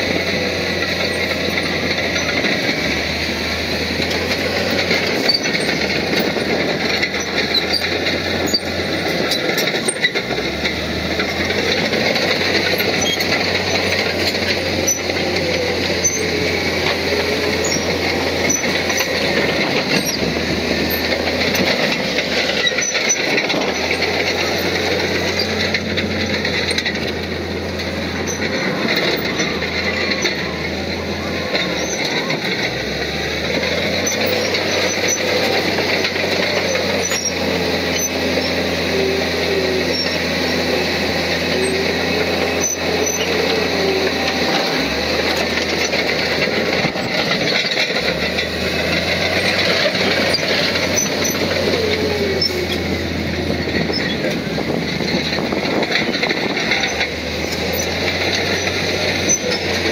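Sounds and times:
bulldozer diesel engine: 0.0s - 59.9s
steel tracks clanking: 0.0s - 59.9s.

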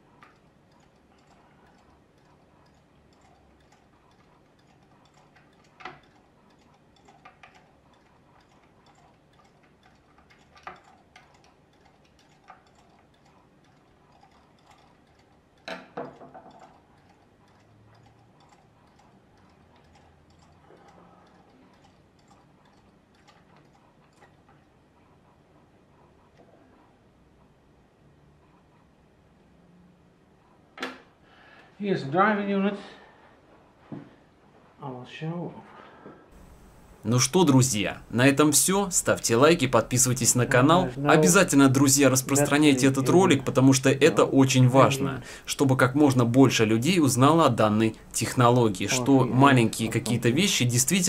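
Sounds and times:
screwdriver scraping and ticking: 0.0s - 26.8s, 36.3s - 51.0s
sharp clicks and knocks: 0.1s - 24.6s.

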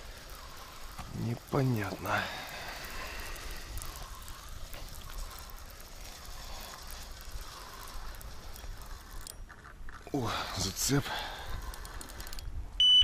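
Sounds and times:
fishing reel ticking whir: 0.0s - 13.0s.

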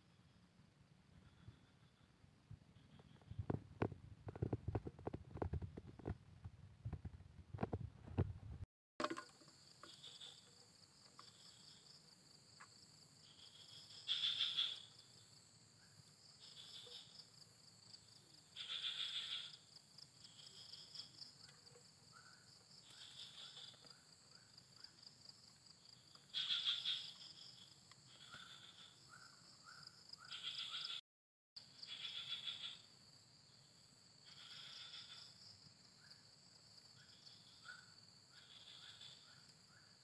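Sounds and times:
shrill insect call: 9.2s - 31.0s, 31.6s - 40.0s.

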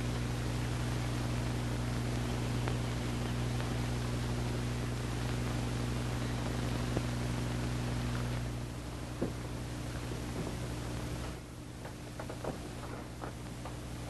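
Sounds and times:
constant hiss: 0.0s - 14.0s
low electrical hum: 0.0s - 14.0s.

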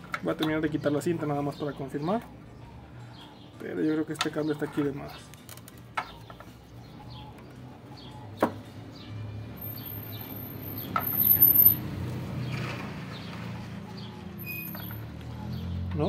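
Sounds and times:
birds chirping: 0.0s - 11.8s, 12.4s - 16.0s
tape rustling: 5.2s - 6.5s.

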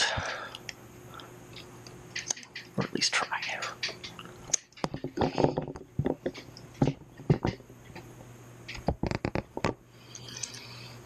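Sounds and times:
hardware clicks and knocks: 3.8s - 8.1s, 8.7s - 9.8s.

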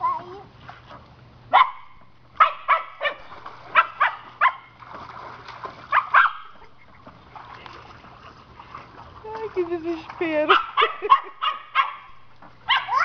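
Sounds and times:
dog barking: 1.5s - 4.7s, 5.9s - 6.6s, 10.5s - 13.0s.

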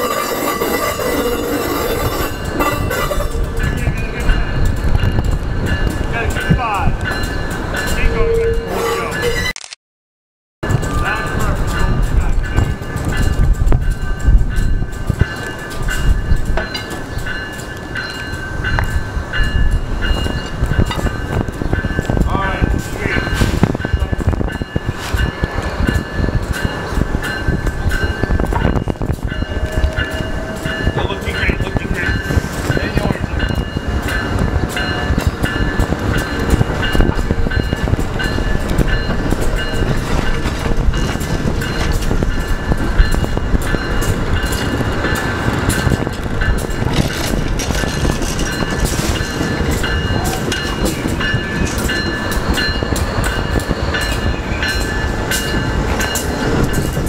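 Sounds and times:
steel wheels squealing on track: 0.0s - 4.4s, 7.2s - 9.6s
train low rumble with clicks: 0.0s - 9.4s, 10.6s - 57.0s.

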